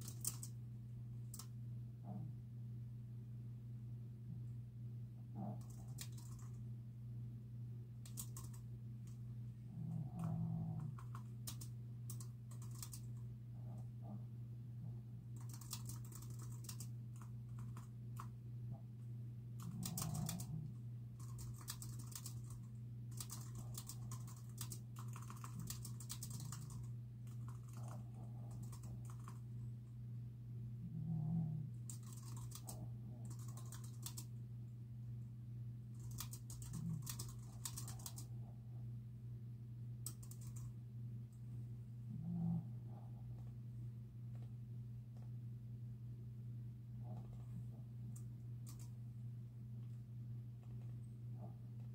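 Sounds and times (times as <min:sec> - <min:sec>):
typing on computer keyboard: 0:00.0 - 0:00.6, 0:05.6 - 0:06.6, 0:08.0 - 0:08.6, 0:10.8 - 0:13.2, 0:15.4 - 0:18.3, 0:19.6 - 0:20.6, 0:21.2 - 0:29.4, 0:31.9 - 0:34.3, 0:36.0 - 0:38.3, 0:40.0 - 0:40.7, 0:48.6 - 0:48.9
low steady hum: 0:00.0 - 0:51.9.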